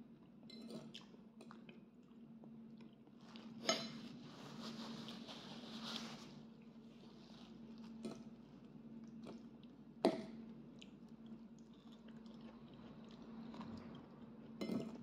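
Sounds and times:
person chewing: 0:10.7 - 0:15.0.

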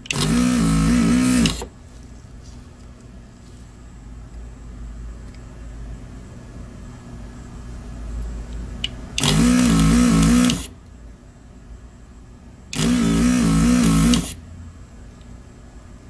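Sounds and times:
desoldering pump buzzing: 0:00.0 - 0:01.8, 0:09.1 - 0:10.8, 0:12.7 - 0:14.4.

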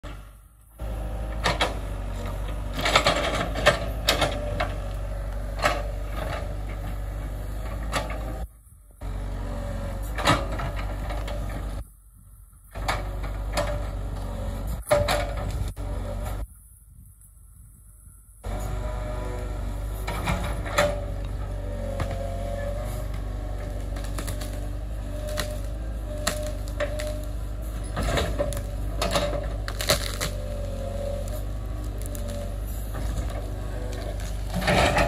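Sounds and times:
excavator engine humming: 0:00.0 - 0:35.0
sharp knocks and cracks: 0:28.0 - 0:30.4.

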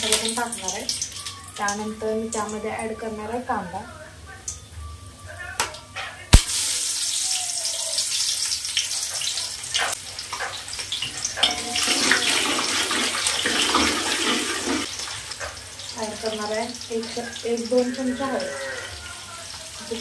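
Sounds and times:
hot oil sizzling: 0:00.0 - 0:03.8, 0:06.1 - 0:20.0
metal spoon stirring a pot: 0:09.8 - 0:14.6.

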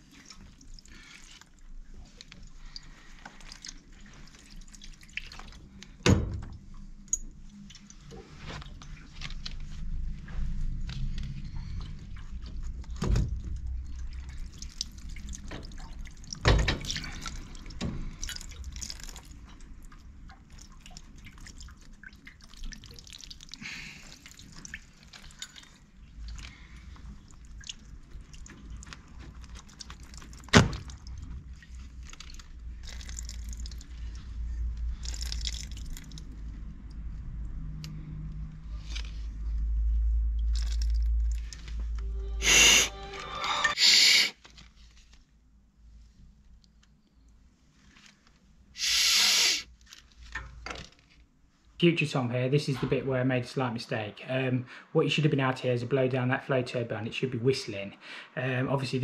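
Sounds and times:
water dripping into plastic tray: 0:13.6 - 0:34.0, 0:35.0 - 0:36.4
clicks and knocks of pipe fittings: 0:49.9 - 0:51.2.

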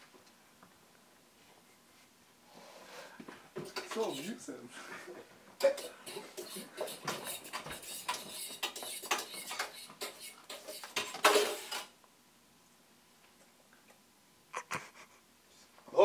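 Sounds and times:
utensils clattering in a metal sink: 0:03.6 - 0:04.4, 0:05.6 - 0:11.9.

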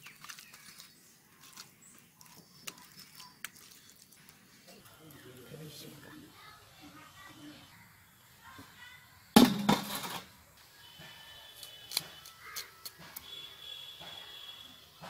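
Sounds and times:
thin high bird calls: 0:00.0 - 0:04.2
crow cawing: 0:12.4 - 0:12.8.

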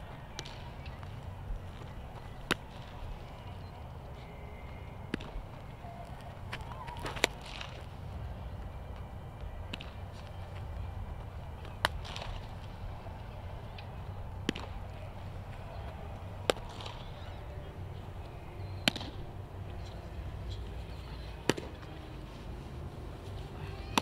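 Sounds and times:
baseball smacking into a mitt: 0:00.3 - 0:01.1, 0:05.1 - 0:05.4, 0:09.7 - 0:10.0, 0:11.6 - 0:12.6, 0:14.4 - 0:14.9, 0:16.4 - 0:17.2, 0:18.8 - 0:19.2, 0:21.4 - 0:21.9.

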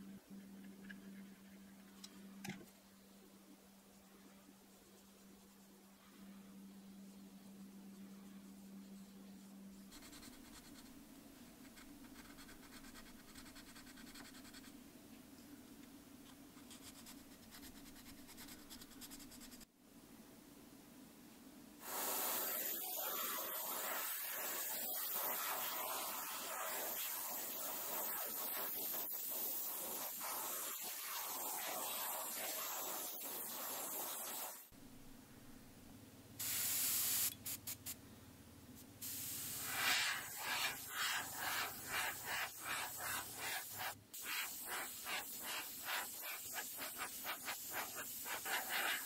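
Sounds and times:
airbrush spraying hiss: 0:21.8 - 0:34.8, 0:36.4 - 0:38.0, 0:38.8 - 0:49.0.

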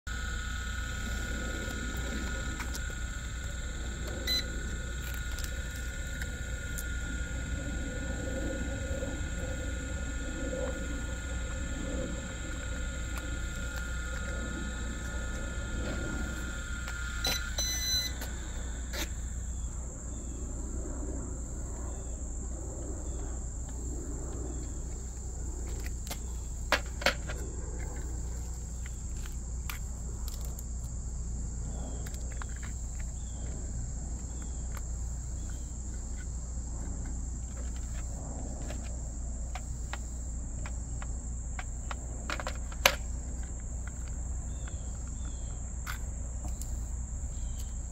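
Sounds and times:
steady tone: 0:00.1 - 0:21.5
crickets trilling: 0:00.1 - 0:47.9
low background hum: 0:00.1 - 0:47.9.

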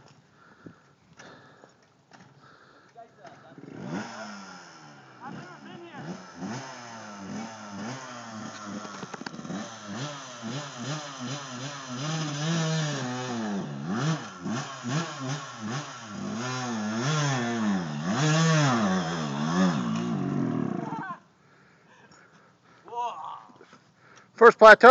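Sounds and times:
dirt bike engine revving: 0:03.3 - 0:21.2.

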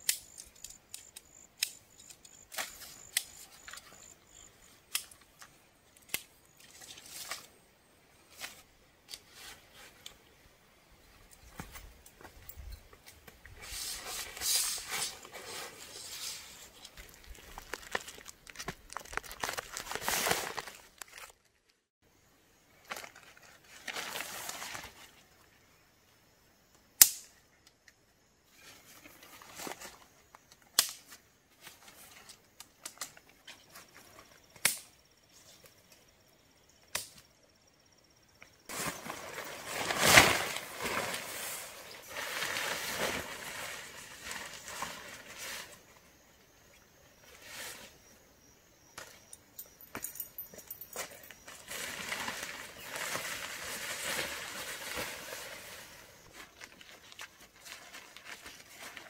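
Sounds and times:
tent clips snapping onto poles: 0:00.0 - 0:03.8, 0:04.9 - 0:06.7, 0:27.0 - 0:27.3, 0:30.5 - 0:31.2, 0:34.6 - 0:35.0, 0:36.9 - 0:37.2
tent fabric rustling and flapping: 0:11.4 - 0:21.4, 0:38.7 - 0:45.9, 0:51.4 - 0:59.0.

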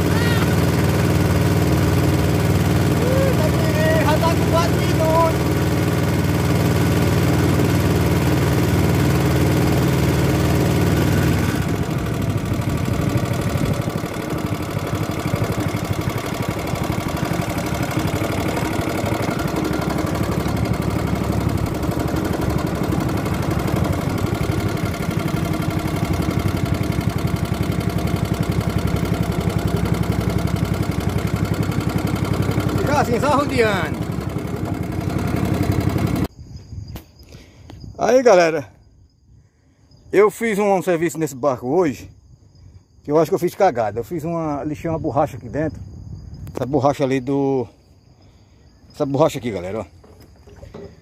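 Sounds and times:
small boat engine running: 0:00.0 - 0:36.3, 0:49.4 - 0:51.0.

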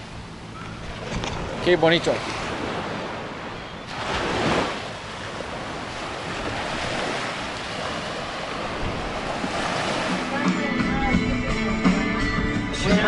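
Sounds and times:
wind rumbling on microphone: 0:00.0 - 0:10.2
surf washing onto sand: 0:01.1 - 0:11.3.

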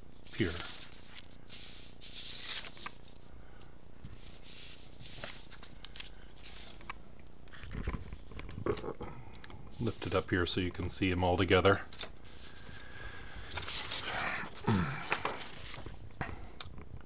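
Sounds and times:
paper sliding and rustling: 0:00.3 - 0:03.3, 0:04.0 - 0:07.0, 0:09.8 - 0:10.3, 0:11.8 - 0:12.8, 0:13.5 - 0:15.9.

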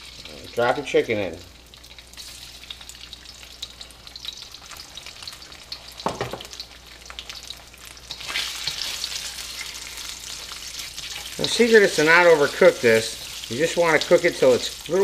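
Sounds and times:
chicken sizzling in oil: 0:00.0 - 0:15.0
clunk in wok: 0:06.0 - 0:06.5.

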